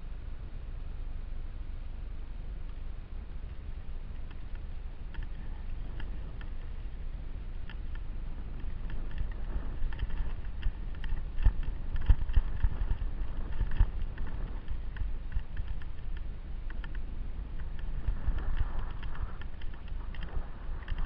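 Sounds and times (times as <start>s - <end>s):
low rumble: 0.0s - 21.0s
stones and gear clicking: 7.6s - 17.0s, 17.6s - 21.0s.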